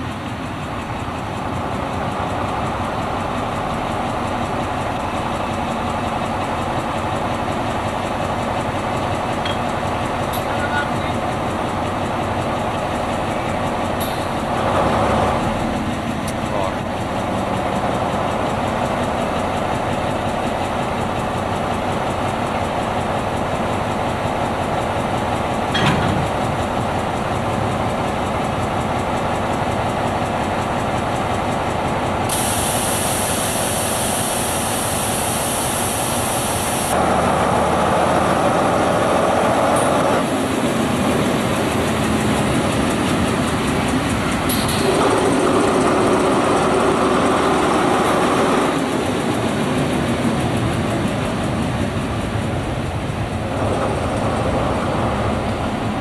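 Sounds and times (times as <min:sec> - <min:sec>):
diesel locomotive engine running: 0:00.0 - 0:56.0
hiss: 0:32.2 - 0:37.0.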